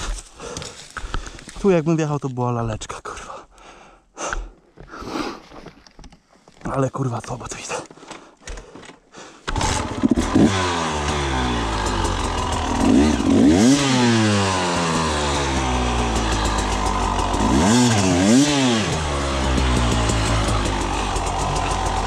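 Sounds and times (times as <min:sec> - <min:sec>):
two-stroke engine revving: 0:09.5 - 0:22.0.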